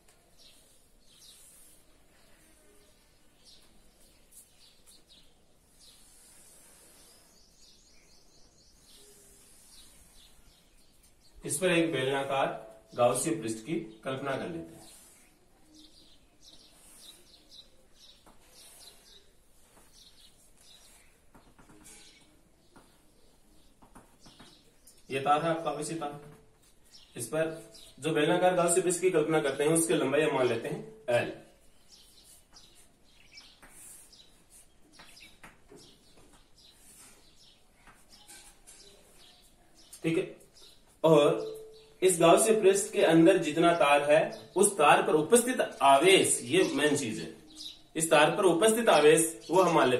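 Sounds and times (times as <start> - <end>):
faint bird chirping: 0.0 - 49.9
chalk scratching on blackboard: 14.8 - 15.4, 33.6 - 35.2
chalk tapping on blackboard: 21.3 - 22.0, 23.8 - 24.7, 33.4 - 35.9.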